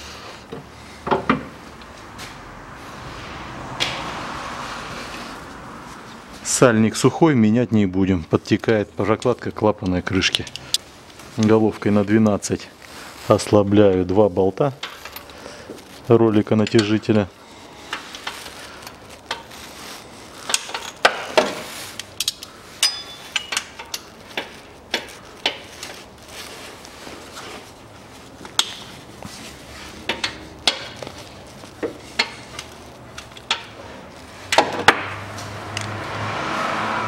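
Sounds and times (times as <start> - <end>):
wrench and bolts clinking on metal: 14.8 - 15.4, 20.4 - 25.7.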